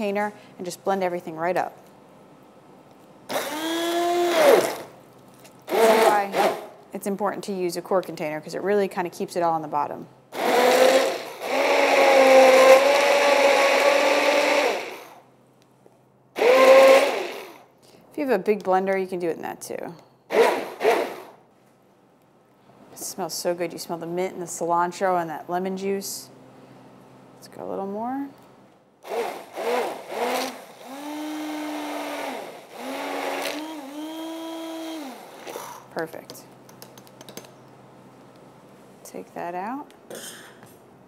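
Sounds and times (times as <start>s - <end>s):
immersion blender motor whine: 3.3s - 4.9s, 10.4s - 15.2s, 16.4s - 17.6s, 29.0s - 35.7s.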